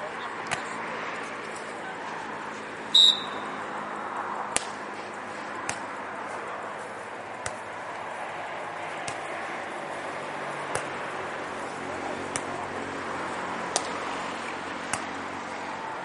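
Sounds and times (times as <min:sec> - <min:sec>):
murmur of background voices: 0:00.0 - 0:16.0
hands slapping volleyball: 0:00.4 - 0:00.8, 0:04.5 - 0:04.9, 0:05.6 - 0:06.0, 0:07.4 - 0:08.1, 0:09.0 - 0:09.4, 0:10.6 - 0:11.2, 0:12.2 - 0:12.6, 0:13.7 - 0:14.1, 0:14.8 - 0:15.2
referee's whistle blast: 0:02.9 - 0:03.4.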